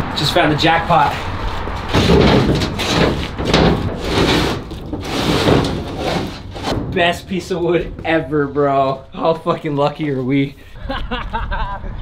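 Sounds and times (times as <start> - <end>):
wooden board scraping: 1.2 - 8.4.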